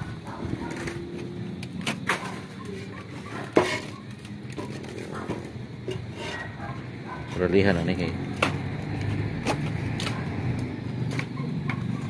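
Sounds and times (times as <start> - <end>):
clay roof tiles clinking: 0.6 - 6.8.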